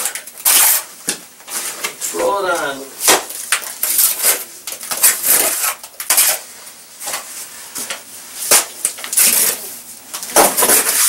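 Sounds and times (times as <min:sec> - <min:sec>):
trowel scraping plaster: 0:03.8 - 0:06.5, 0:08.4 - 0:11.0.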